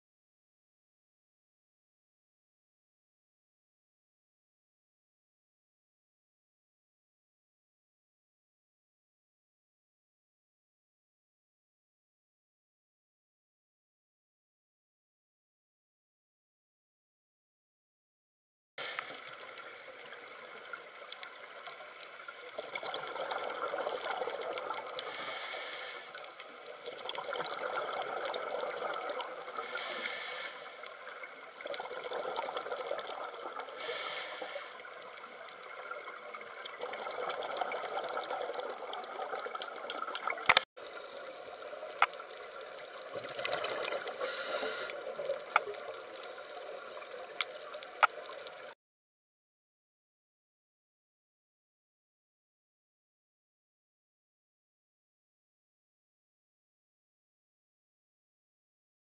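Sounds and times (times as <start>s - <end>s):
underwater rushing noise: 18.8s - 48.8s.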